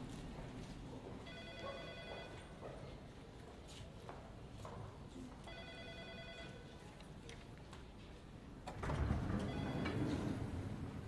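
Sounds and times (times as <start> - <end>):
elevator doors rumbling open: 8.6 - 11.0
elevator arrival chime: 9.3 - 10.3.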